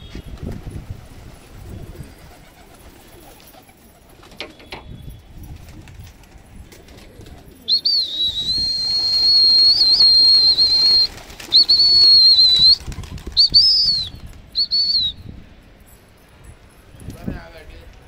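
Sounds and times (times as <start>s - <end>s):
pigeon wings flapping: 0.0s - 4.8s, 5.4s - 14.6s
shrill whistle: 7.7s - 15.4s.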